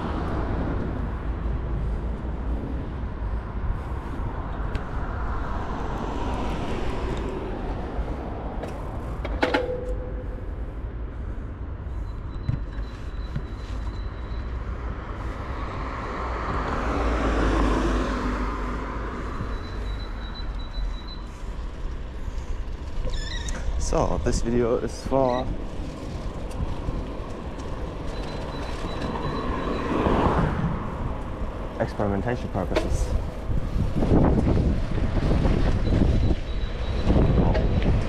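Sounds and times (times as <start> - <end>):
vehicle passing: 0.0 - 9.2, 14.6 - 23.0, 24.2 - 36.2
city road traffic: 0.0 - 38.0.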